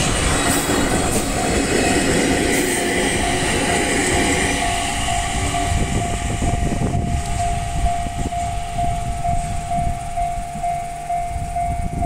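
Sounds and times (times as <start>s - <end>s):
electric train rumble: 0.0s - 12.0s
level crossing bell ringing: 3.1s - 12.0s.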